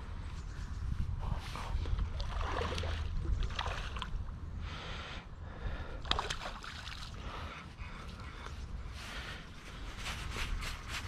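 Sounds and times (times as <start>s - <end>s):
wind buffeting microphone: 0.0s - 6.5s
rustling: 8.3s - 11.0s.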